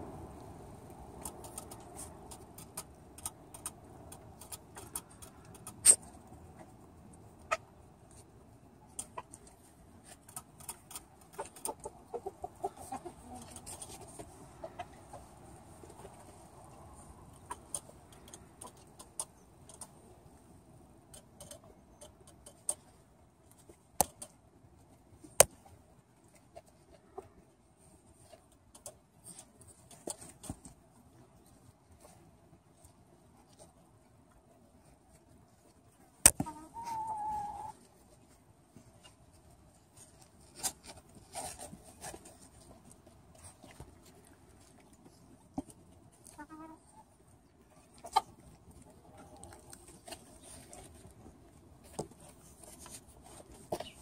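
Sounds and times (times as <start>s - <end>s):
hens clucking softly: 1.3s - 8.3s, 8.9s - 20.2s, 36.3s - 38.0s, 43.4s - 51.2s.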